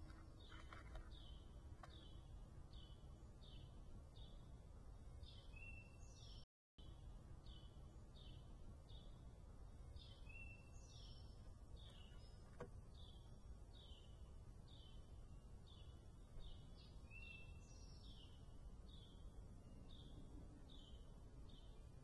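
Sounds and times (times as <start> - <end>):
bird chirping: 0.0 - 9.2, 9.8 - 22.0
low outdoor rumble: 6.8 - 22.0.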